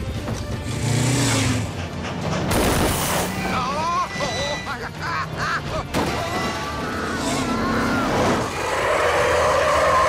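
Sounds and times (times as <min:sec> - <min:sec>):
screech like skidding wheels: 0:06.1 - 0:10.0.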